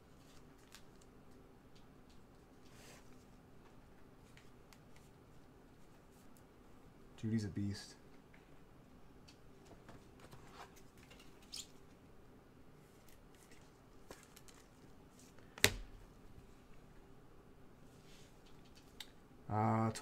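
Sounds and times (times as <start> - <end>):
rustling of packaging: 12.9 - 15.5.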